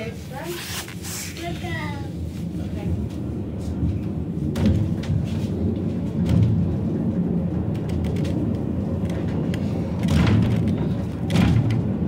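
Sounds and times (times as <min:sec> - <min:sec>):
funicular car rumbling on rails: 0:01.3 - 0:12.0.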